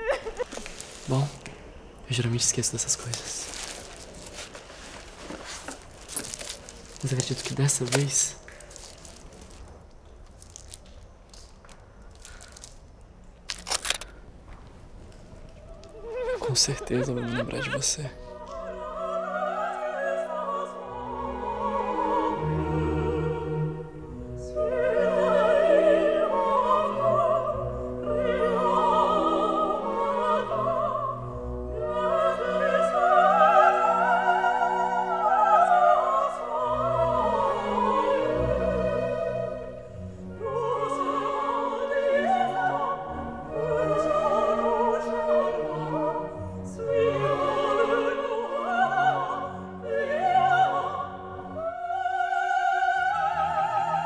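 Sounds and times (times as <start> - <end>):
operatic singing: 15.6 - 54.0
orchestral accompaniment: 16.1 - 54.0.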